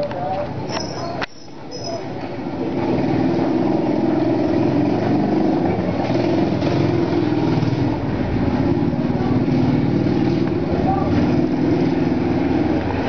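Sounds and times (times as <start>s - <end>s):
vehicle engine running: 0.4s - 13.0s.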